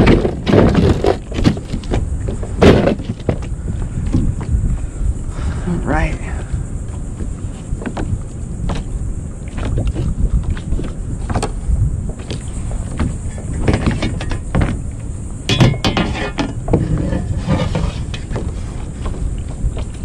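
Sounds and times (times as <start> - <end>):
fish knocking against plastic kayak: 0.0 - 4.6, 9.5 - 18.5
wind rumble on microphone: 0.0 - 20.0.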